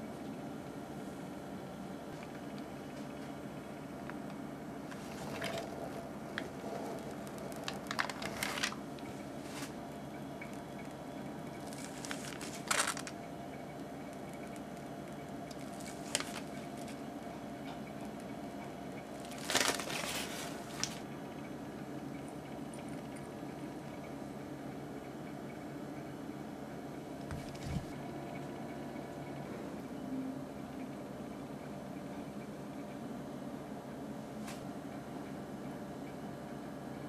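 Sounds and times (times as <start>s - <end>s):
low room hum: 0.0s - 37.0s
piping bag squishing: 4.9s - 9.8s, 10.4s - 13.2s, 14.0s - 17.1s, 19.0s - 21.1s.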